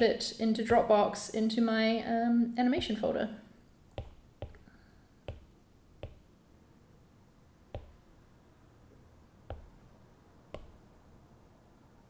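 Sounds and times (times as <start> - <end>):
stylus tapping glass screen: 3.9 - 6.3, 7.7 - 8.2, 9.4 - 9.9, 10.5 - 10.9.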